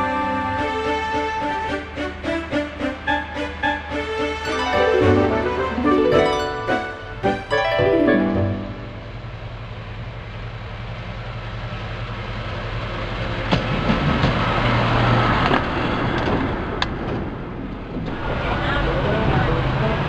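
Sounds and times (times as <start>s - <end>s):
diesel locomotive engine drone: 0.0s - 20.0s
wheels clicking on rails: 9.0s - 20.0s.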